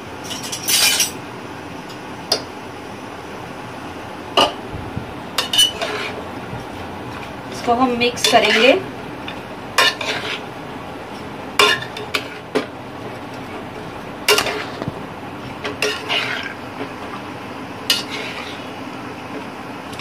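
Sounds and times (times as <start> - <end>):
metal spoon scraping metal pot: 5.4 - 6.2, 8.2 - 8.8, 9.8 - 10.4, 14.3 - 14.8, 15.8 - 16.6, 17.9 - 18.7.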